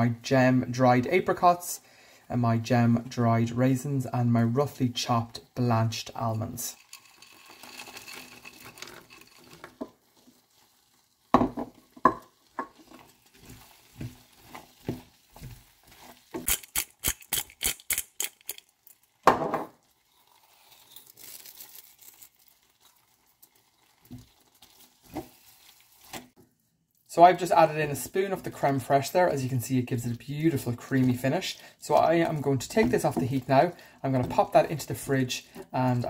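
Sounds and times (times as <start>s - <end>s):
wooden spoon scraping a pan: 6.8s - 16.4s, 29.4s - 36.0s
faint sauce sizzle: 9.5s - 16.4s, 19.8s - 36.0s.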